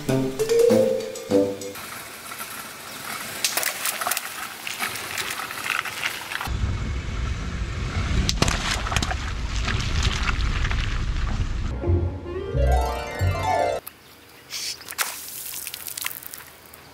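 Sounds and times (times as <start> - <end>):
car rolling rumble: 1.8 - 11.8
water balloons bursting: 14.8 - 16.8.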